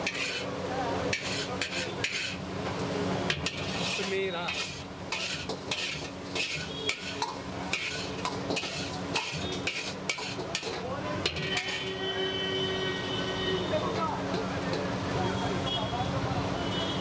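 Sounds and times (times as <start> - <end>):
metal ladle scraping metal pot: 0.0 - 0.5, 1.1 - 2.4, 3.3 - 12.2.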